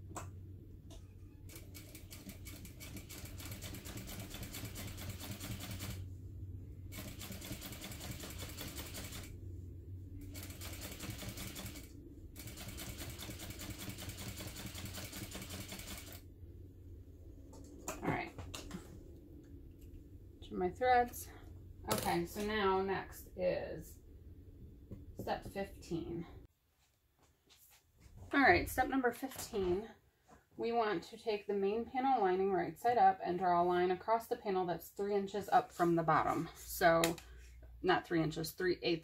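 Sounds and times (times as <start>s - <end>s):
sewing machine stitching: 10.2s - 16.2s.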